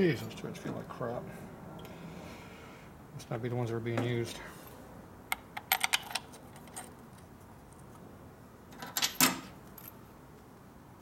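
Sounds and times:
metallic clicks of small parts: 0:05.3 - 0:07.0.

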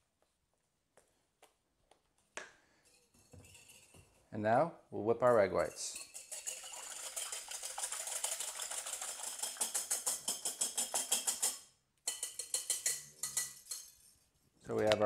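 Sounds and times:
whisk clicking against glass bowl: 0:05.9 - 0:13.9.

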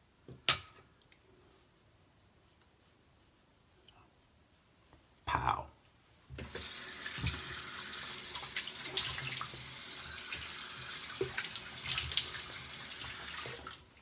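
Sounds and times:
tap water running into sink: 0:06.4 - 0:13.9.

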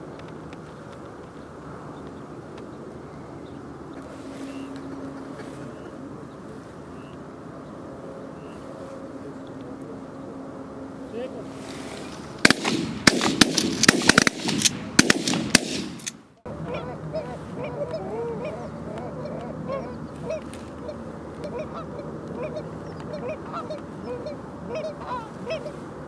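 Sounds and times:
shotgun fire: 0:12.4 - 0:16.1
waterfowl honking and quacking: 0:16.5 - 0:25.9.

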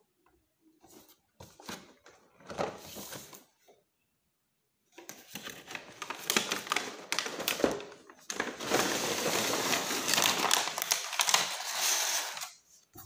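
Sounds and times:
plastic packaging crinkling: 0:05.2 - 0:12.6.

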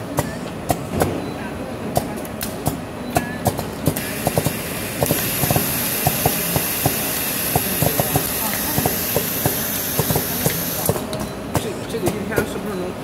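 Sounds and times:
steady machine din: 0:04.0 - 0:11.0.

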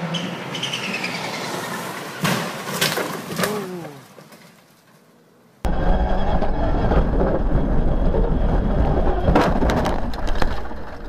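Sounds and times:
vehicle engine and road rumble: 0:05.6 - 0:11.0.

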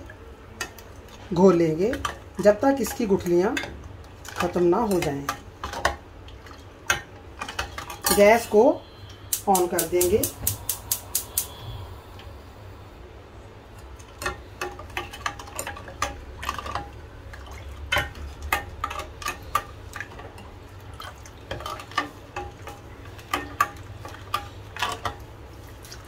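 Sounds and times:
low steady hum: 0:00.0 - 0:26.0
ladle clinking and scraping pan: 0:07.4 - 0:08.6.

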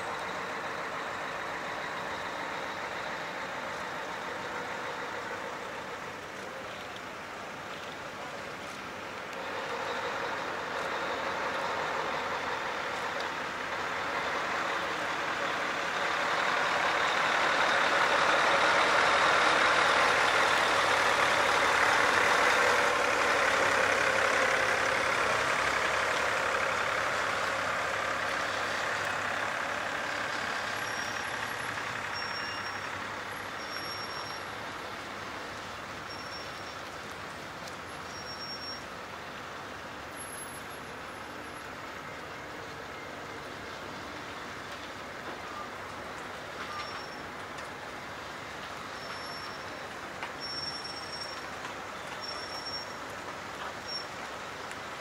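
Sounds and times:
heavy truck driving past: 0:00.0 - 0:06.4, 0:09.3 - 0:36.9.

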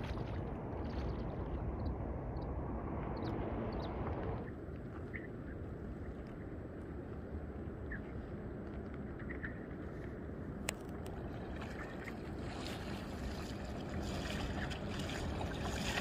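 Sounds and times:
river water sloshing around legs: 0:00.0 - 0:01.8, 0:09.6 - 0:16.0.

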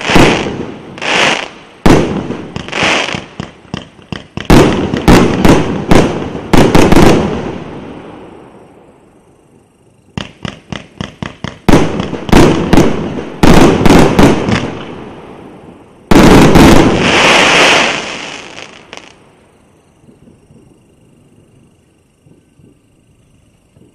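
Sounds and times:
fireworks pops and bangs: 0:00.0 - 0:07.6, 0:10.2 - 0:15.0, 0:16.1 - 0:19.2
fireworks hiss: 0:00.0 - 0:23.9.

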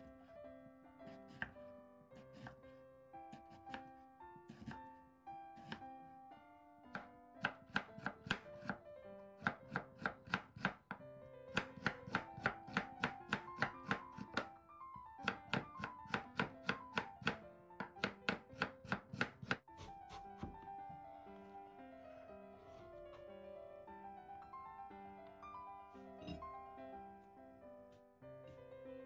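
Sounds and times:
light background music: 0:00.0 - 0:29.0
knife chopping on wooden board: 0:01.1 - 0:01.6, 0:02.2 - 0:02.6, 0:04.5 - 0:04.8, 0:05.6 - 0:05.8, 0:06.9 - 0:08.8, 0:09.4 - 0:21.0.

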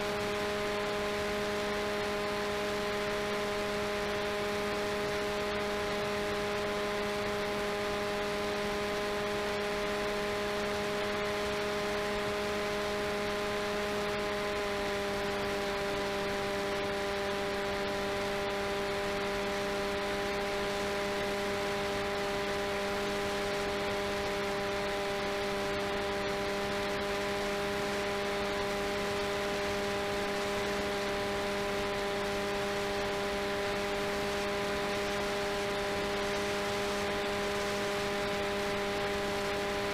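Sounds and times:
electric motor whine: 0:00.0 - 0:39.9.

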